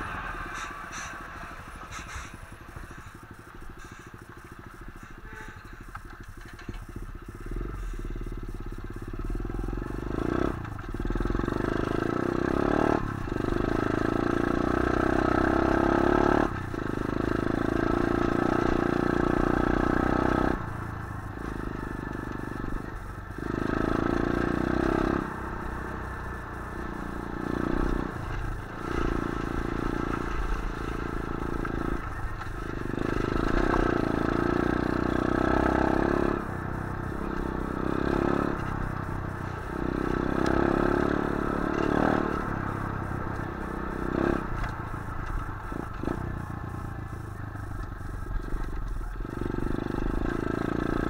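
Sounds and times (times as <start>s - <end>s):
bike rattling over rough ground: 0.0s - 25.2s, 26.0s - 51.0s
motorbike engine revving: 0.0s - 51.0s.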